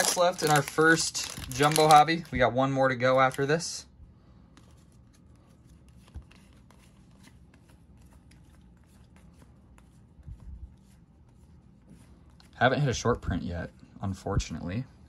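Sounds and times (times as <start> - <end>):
cards rustling and clicking: 0.0 - 3.6, 4.4 - 12.6.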